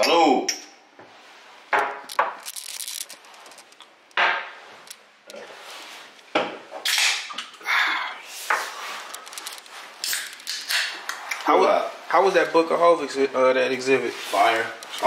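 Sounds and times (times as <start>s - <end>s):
hard objects knocking and scraping: 1.7s - 5.0s.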